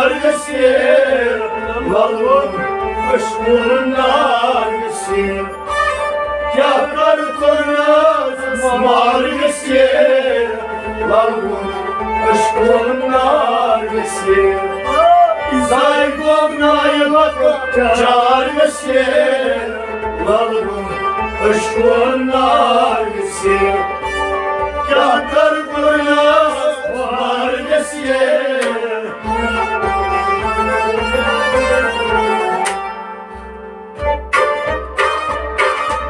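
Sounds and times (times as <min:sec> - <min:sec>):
men singing devotional song: 0:00.0 - 0:05.7, 0:06.5 - 0:24.1, 0:24.8 - 0:32.6
bowed string instrument: 0:00.0 - 0:36.0
harmonium: 0:00.0 - 0:36.0
plucked lute: 0:28.6 - 0:36.0.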